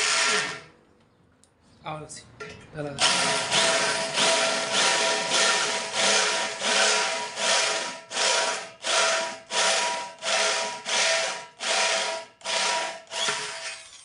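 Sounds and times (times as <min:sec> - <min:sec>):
drill bit grinding into steel: 0:00.0 - 0:00.6, 0:03.0 - 0:14.0
drill motor whine: 0:03.0 - 0:14.0.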